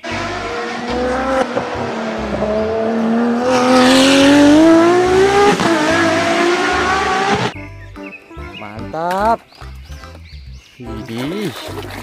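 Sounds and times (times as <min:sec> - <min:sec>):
race car engine accelerating past: 0:00.0 - 0:07.6.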